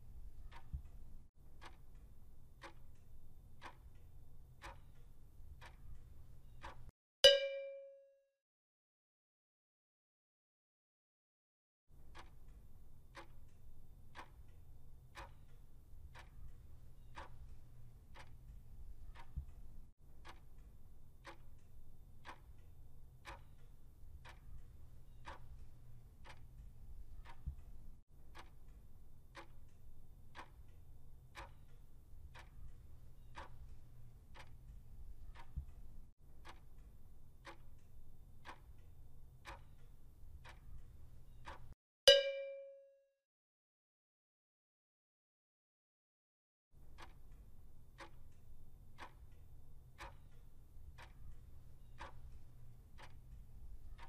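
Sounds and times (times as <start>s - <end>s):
clock ticking: 0.2s - 7.4s, 12.0s - 42.6s, 46.8s - 54.0s
short bright ding: 7.3s - 8.2s, 42.1s - 43.0s.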